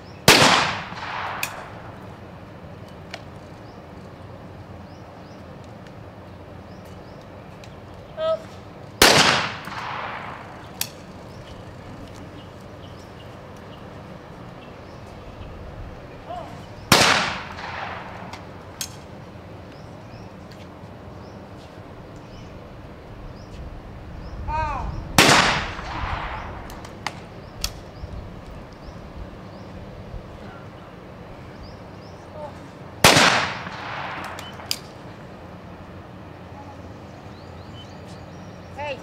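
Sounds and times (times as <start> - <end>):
shotgun shots: 0.3 - 2.0, 9.0 - 10.8, 16.9 - 18.5, 25.2 - 26.7, 33.0 - 34.7.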